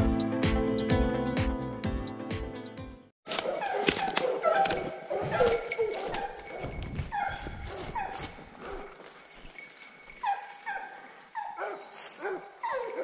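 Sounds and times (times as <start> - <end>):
hounds baying: 3.3 - 9.2, 10.1 - 13.0.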